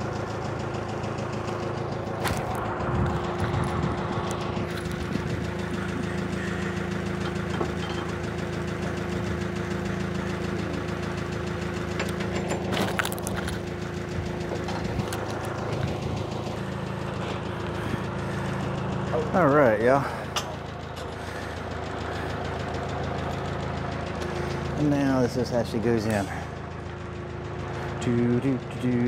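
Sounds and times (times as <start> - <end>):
diesel truck engine idling: 0.0 - 29.0.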